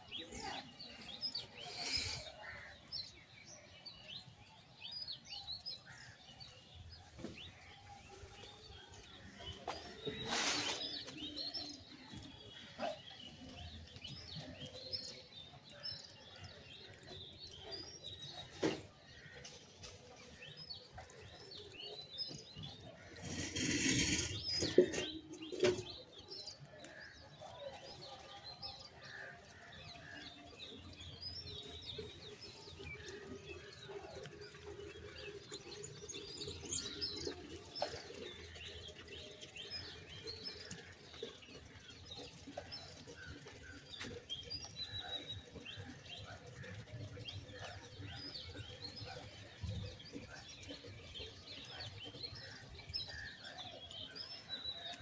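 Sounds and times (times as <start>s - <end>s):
small birds chirping: 0.0s - 27.1s.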